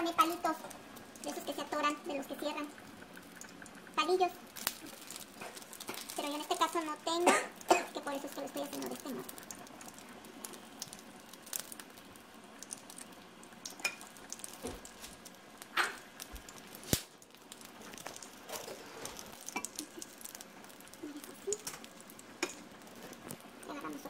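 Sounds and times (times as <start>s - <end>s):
food sizzling in oil: 0.0s - 24.0s
sharp clicks in a pan: 12.6s - 18.3s, 21.5s - 22.7s.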